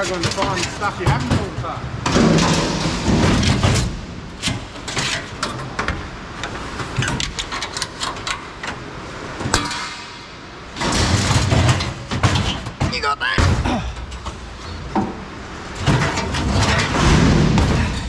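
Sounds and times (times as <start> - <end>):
scrap metal clanking: 0.0 - 5.8, 13.5 - 18.0.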